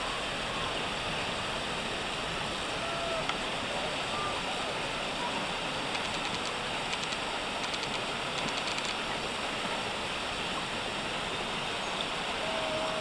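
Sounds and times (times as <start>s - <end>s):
river water rushing: 0.0s - 13.0s
faint water clicks: 3.2s - 3.5s, 5.8s - 9.4s.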